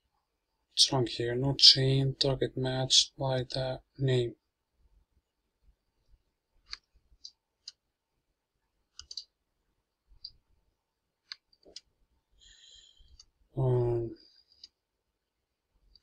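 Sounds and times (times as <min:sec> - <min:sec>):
computer mouse clicks: 0:06.6 - 0:07.8, 0:08.9 - 0:09.3, 0:11.2 - 0:11.9.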